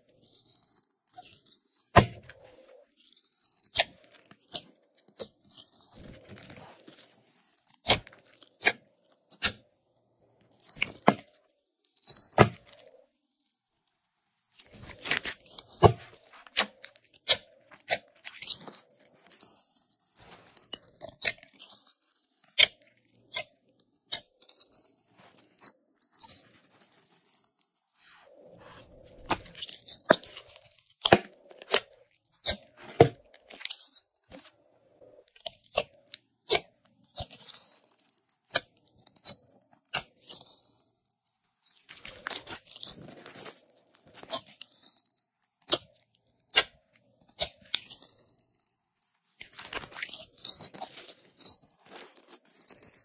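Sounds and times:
sticky slime crackle: 41.7s - 53.0s.

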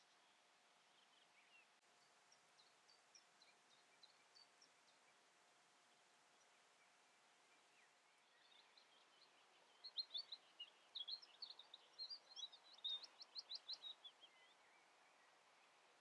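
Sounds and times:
small songbird singing: 0.0s - 16.0s.

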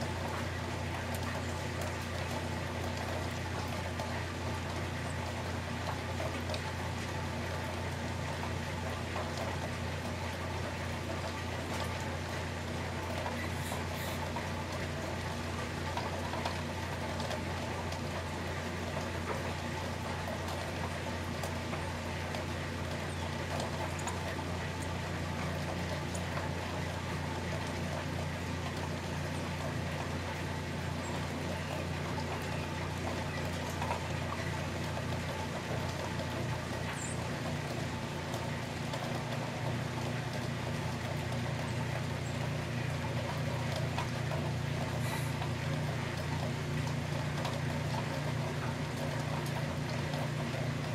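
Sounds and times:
low steady hum: 0.0s - 50.9s
steady rain falling: 0.0s - 50.9s
faint drip ticks: 0.1s - 50.9s.

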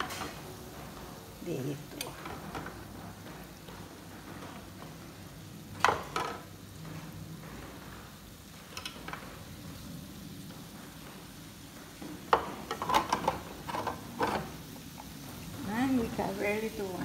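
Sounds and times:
seafood sizzling on grill: 0.0s - 17.0s.

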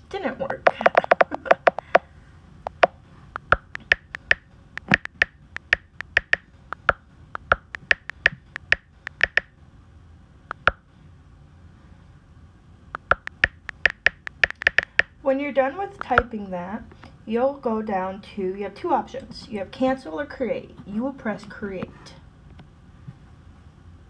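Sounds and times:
touchscreen keyboard clicks: 0.6s - 2.0s, 2.7s - 9.5s, 10.5s - 10.8s, 13.0s - 15.1s.

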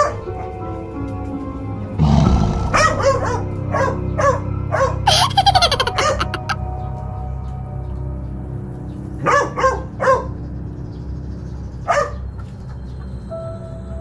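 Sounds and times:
background music: 0.0s - 9.2s
dog barking: 2.8s - 4.9s, 9.2s - 10.3s, 11.9s - 12.2s.

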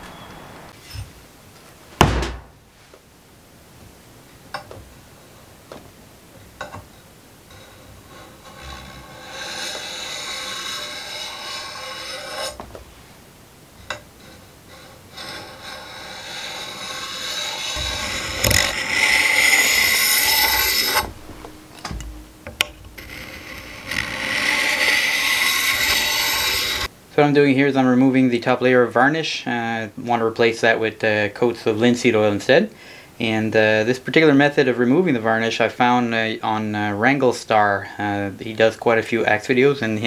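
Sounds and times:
blade scraping wooden handle: 7.5s - 12.6s, 13.8s - 26.9s
short knocks: 17.8s - 23.2s.

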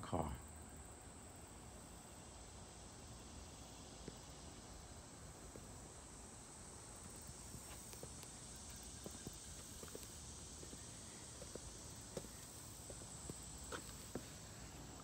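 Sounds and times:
low steady hiss: 0.0s - 15.0s
faint footsteps on asphalt: 3.3s - 15.0s.

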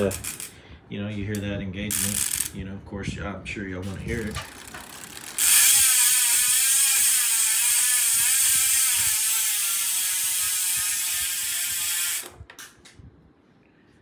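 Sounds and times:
bicycle hub ratcheting buzz: 0.0s - 0.6s, 1.9s - 2.5s, 4.1s - 12.4s.

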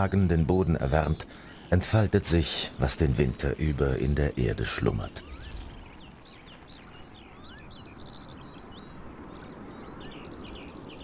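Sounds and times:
outdoor ambience: 0.0s - 11.0s
songbirds chirping and singing: 0.0s - 11.0s.

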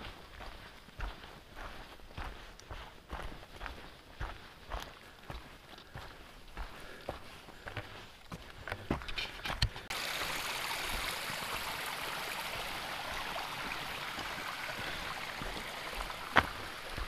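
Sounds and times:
stream water rushing: 9.9s - 17.0s.

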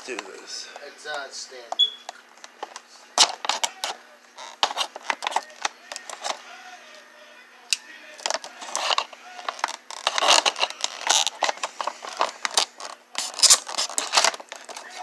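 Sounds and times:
plastic packaging pried and scraped: 3.2s - 6.4s, 8.2s - 15.0s.

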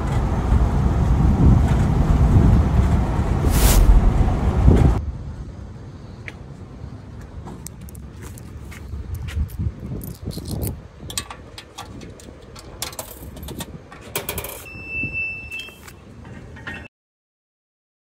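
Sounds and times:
turnstile clicking and rattling: 11.0s - 14.7s.

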